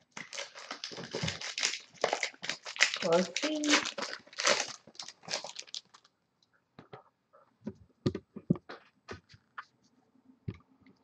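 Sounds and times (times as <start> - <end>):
foil wrapper rustling: 0.1 - 6.1.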